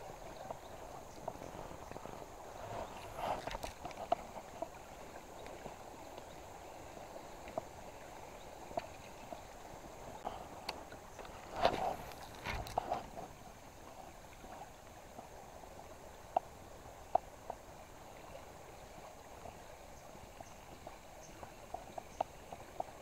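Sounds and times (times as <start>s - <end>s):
faint ticks: 7.4s - 13.1s, 16.2s - 23.0s.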